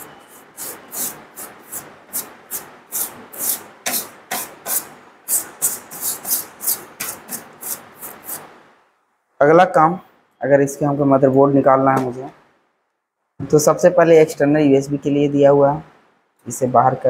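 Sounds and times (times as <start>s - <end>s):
rubbing strokes on a laptop: 0.0s - 8.6s.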